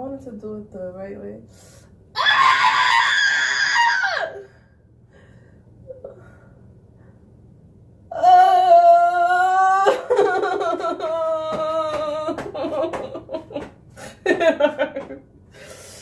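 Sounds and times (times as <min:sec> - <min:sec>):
broken laughing: 0:09.9 - 0:15.3.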